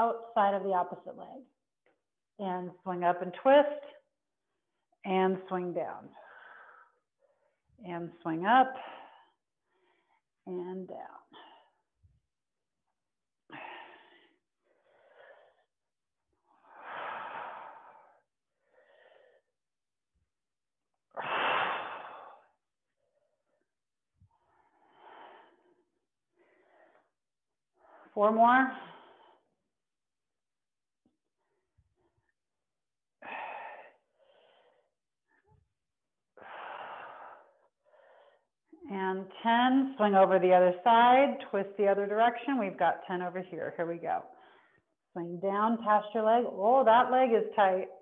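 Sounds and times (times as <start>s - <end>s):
woman breathing hard: 6.1s - 7.7s, 13.5s - 19.6s, 21.1s - 23.6s, 33.2s - 35.6s, 36.4s - 38.6s.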